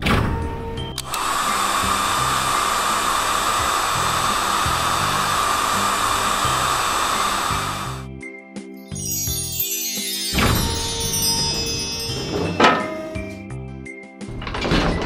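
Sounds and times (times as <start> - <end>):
whirring hiss of spinning brush: 1.1 - 8.1.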